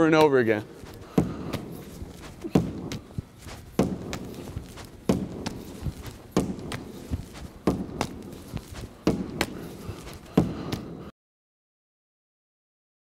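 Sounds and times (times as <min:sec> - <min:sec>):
rubber ball hitting wall: 0:00.2 - 0:09.7.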